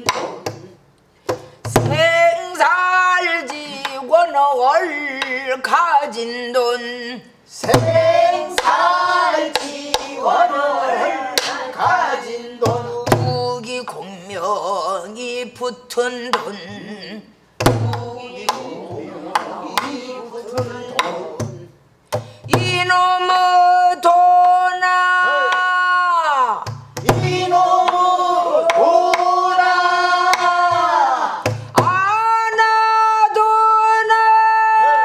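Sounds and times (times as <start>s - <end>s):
woman singing: 1.8s - 8.6s, 22.5s - 26.2s.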